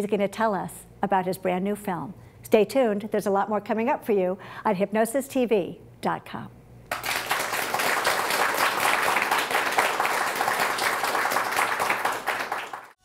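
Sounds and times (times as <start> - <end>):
applause: 6.9 - 13.0.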